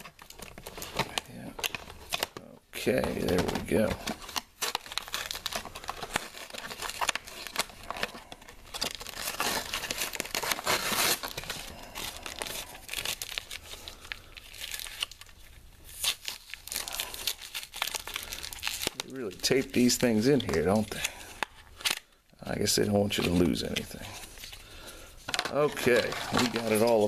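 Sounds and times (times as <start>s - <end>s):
cardboard and tape tearing: 0.0s - 22.1s, 25.5s - 27.0s.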